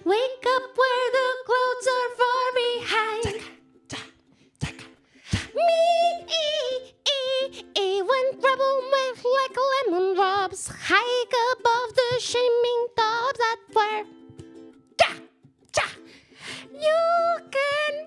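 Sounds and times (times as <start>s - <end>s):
high voice singing with vibrato: 0.0s - 14.1s, 15.0s - 18.0s.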